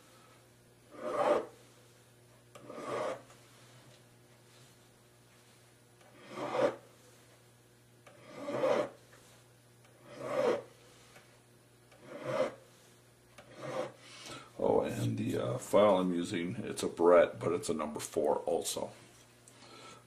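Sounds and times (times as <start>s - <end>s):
hand file rasping on metal: 0.9s - 1.6s, 2.6s - 3.3s, 6.1s - 6.8s, 8.1s - 9.0s, 10.0s - 11.1s, 11.9s - 12.7s, 13.4s - 14.0s.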